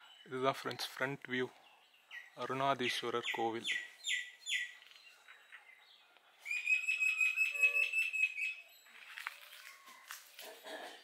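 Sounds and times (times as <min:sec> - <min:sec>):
high-pitched bird trill: 0:06.5 - 0:10.0.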